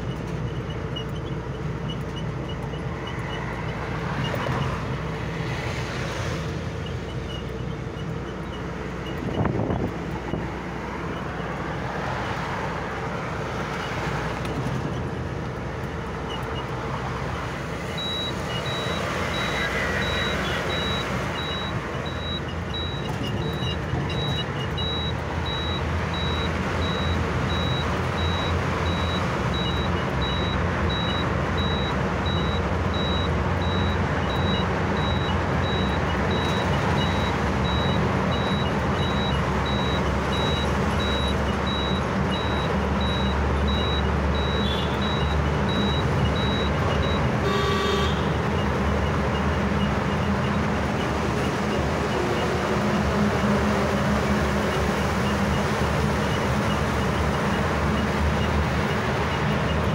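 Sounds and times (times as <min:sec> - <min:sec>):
vehicle engine and road noise: 0:00.0 - 0:59.9
short high beeps: 0:18.0 - 0:48.7.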